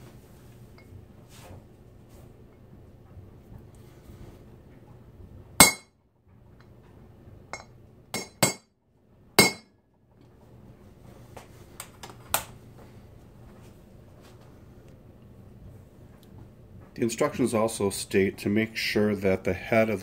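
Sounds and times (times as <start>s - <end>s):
hammer striking metal punch: 5.6s - 5.9s, 7.6s - 8.7s, 9.4s - 9.7s.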